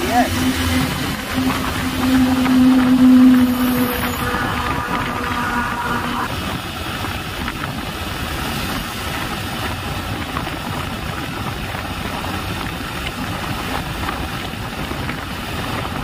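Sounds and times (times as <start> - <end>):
motorcycle engine running: 0.0 - 8.0
wind and road noise: 0.0 - 16.0.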